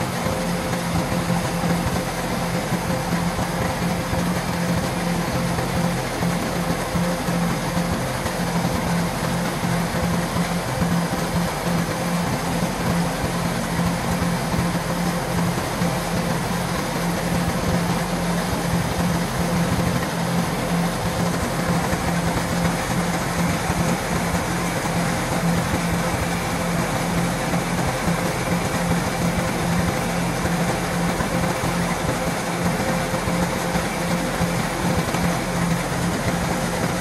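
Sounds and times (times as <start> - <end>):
combine harvester diesel drone: 0.0 - 37.0.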